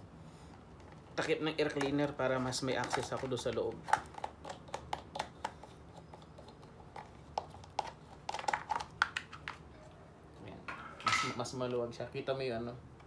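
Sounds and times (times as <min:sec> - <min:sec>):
hands clicking and tapping plastic: 0:01.6 - 0:09.6.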